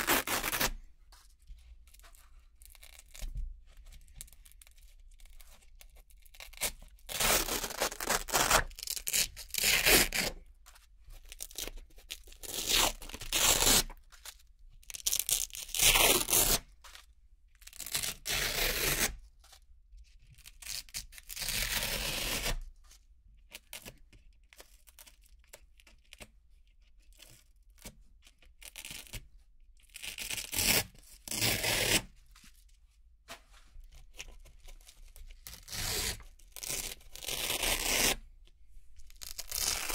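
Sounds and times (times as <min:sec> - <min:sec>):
velcro ripping: 0:00.0 - 0:00.8, 0:06.4 - 0:10.4, 0:12.4 - 0:13.9, 0:15.0 - 0:16.6, 0:30.0 - 0:32.1, 0:35.5 - 0:38.2, 0:39.1 - 0:39.9.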